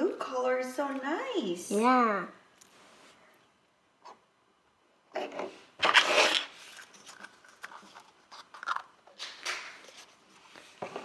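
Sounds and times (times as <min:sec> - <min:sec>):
plastic rustling and scraping: 0:05.2 - 0:11.0.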